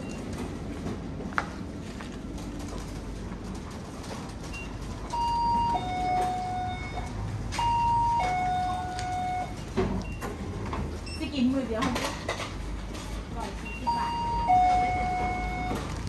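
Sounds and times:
low store hum: 0.0 - 16.0
electronic door chime ding-dong: 5.1 - 9.6, 13.8 - 15.8.

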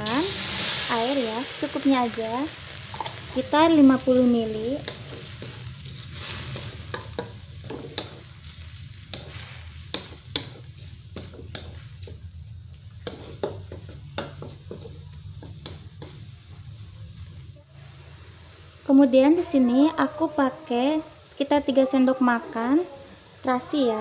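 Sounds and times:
light sizzle: 0.0 - 24.0
spatula scraping metal frying pan: 4.5 - 12.2.

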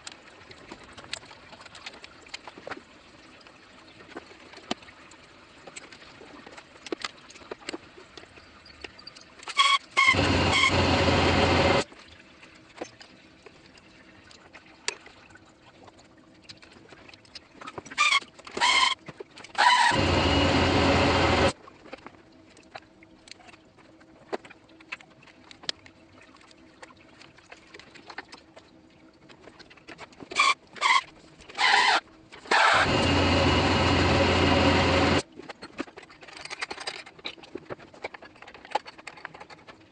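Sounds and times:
power tool whirring: 10.0 - 11.8, 19.6 - 21.5, 32.5 - 35.2.

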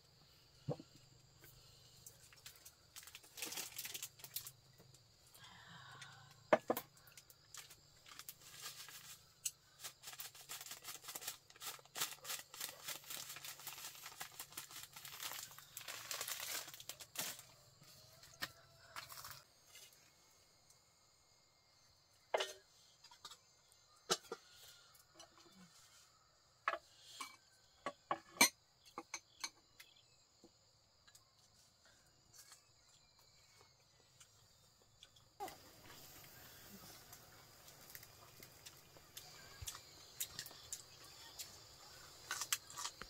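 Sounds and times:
plastic packet crinkling: 2.9 - 4.5, 10.0 - 17.4.

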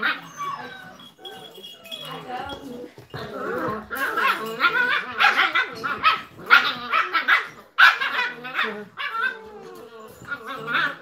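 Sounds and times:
puppies barking and yapping: 0.0 - 11.0.

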